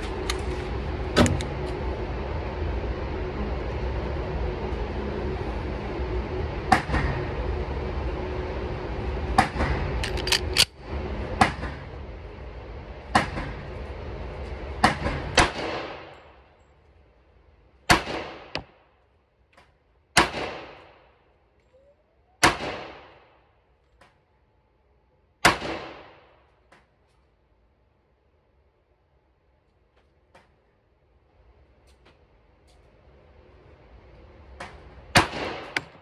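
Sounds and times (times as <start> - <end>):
steady background rush: 0.0 - 16.6.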